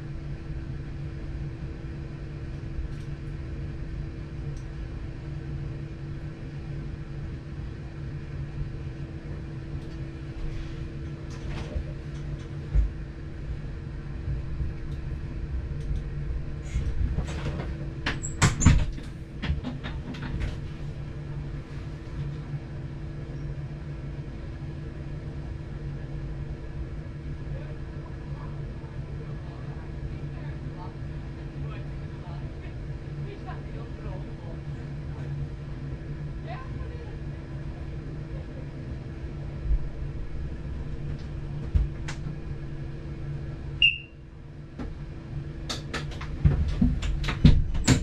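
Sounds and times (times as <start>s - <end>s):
train engine drone: 0.0s - 47.4s
sharp clicks and knocks: 45.7s - 48.0s.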